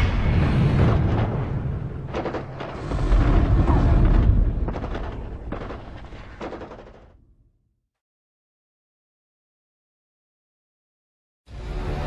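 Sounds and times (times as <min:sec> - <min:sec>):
deep booming rumble: 0:00.0 - 0:07.2.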